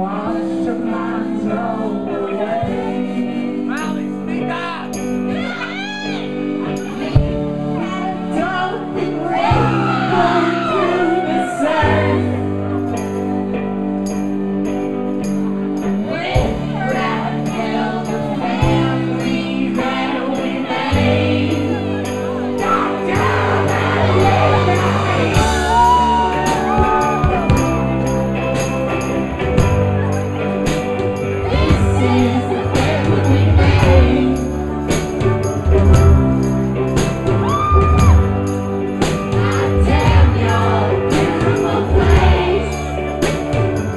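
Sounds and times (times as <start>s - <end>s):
person singing: 0.0s - 13.5s, 15.8s - 43.9s
electric guitar: 0.0s - 43.9s
sustained bass notes: 0.0s - 43.9s
high percussion beat: 20.8s - 43.9s.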